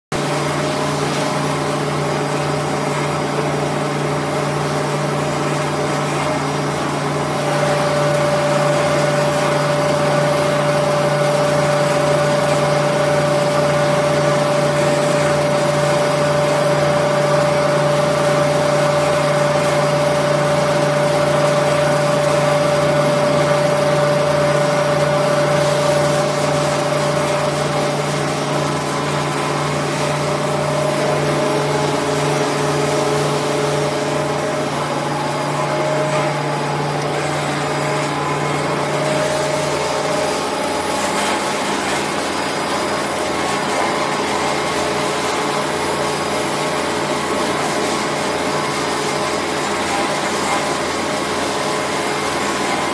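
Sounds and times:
drill press motor humming: 6.1s - 44.8s.

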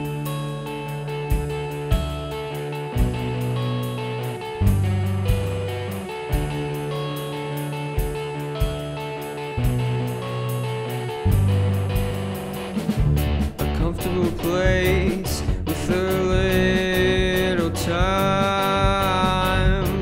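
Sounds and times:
rock band playing: 0.0s - 20.0s
lead vocal singing: 13.8s - 20.0s.

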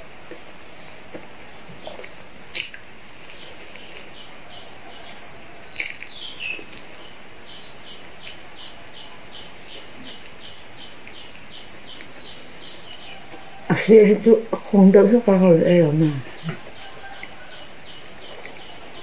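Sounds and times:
steady hiss: 0.0s - 19.0s
bird chirping: 0.8s - 19.0s
person eating with wet bites: 2.0s - 4.2s, 5.6s - 7.0s.

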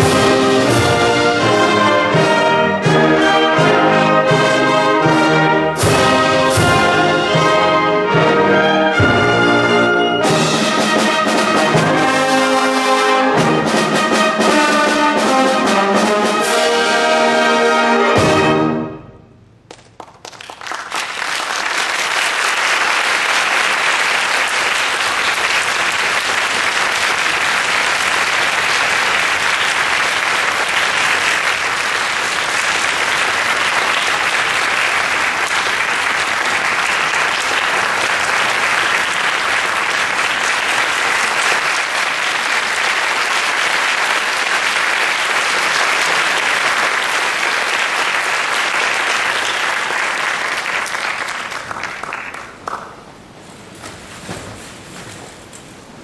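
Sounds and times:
audience applauding: 19.7s - 53.1s.

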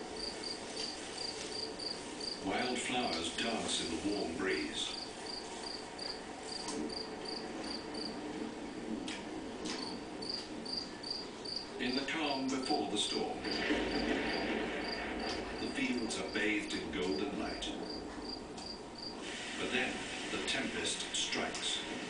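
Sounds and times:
crickets chirping: 0.0s - 2.8s, 4.8s - 8.2s, 9.8s - 12.1s, 13.4s - 16.4s, 17.8s - 19.2s.

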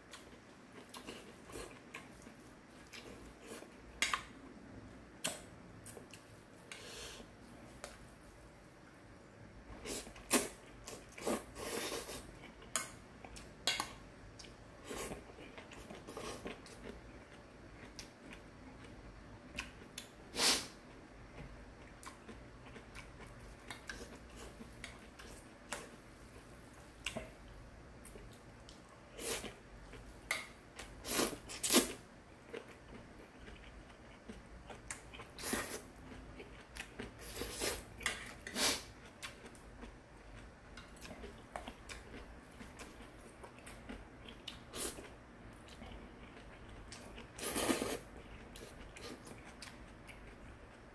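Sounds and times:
person slurping and chewing noodles: 0.7s - 3.8s, 9.8s - 13.5s, 29.0s - 30.0s, 30.8s - 40.4s, 41.0s - 50.4s.

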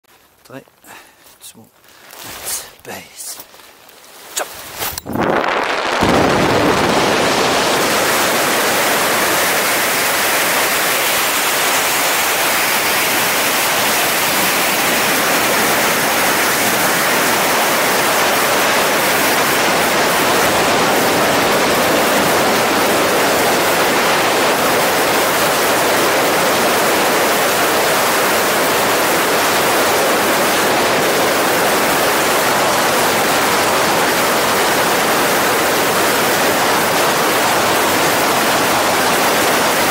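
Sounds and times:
wind rushing over microphone: 4.4s - 11.6s.

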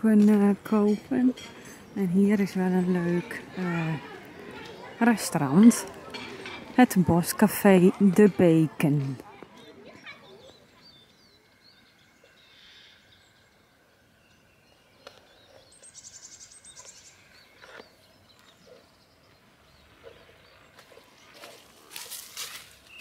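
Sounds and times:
small birds chirping: 0.0s - 23.0s
rustling and crackling: 20.0s - 23.0s.

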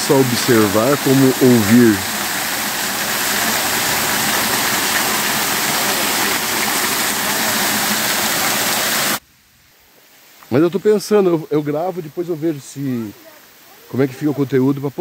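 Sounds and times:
waterfall pouring onto rocks: 0.0s - 9.2s.

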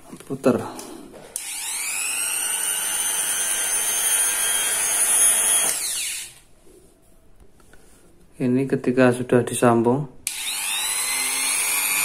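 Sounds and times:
rotary tool whining and spinning down: 1.4s - 6.4s, 10.3s - 12.0s.

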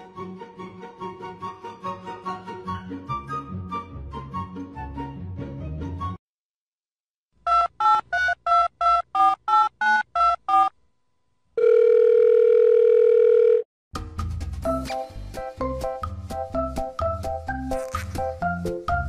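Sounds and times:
steady phone tone: 11.6s - 13.7s
music with a beat: 14.0s - 19.0s.

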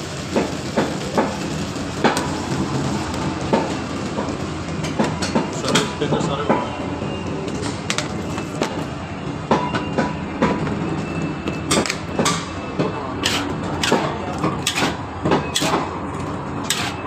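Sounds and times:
stove rushing noise: 0.0s - 9.0s, 11.7s - 17.0s
metal utensils clanking on pan: 13.2s - 17.0s.

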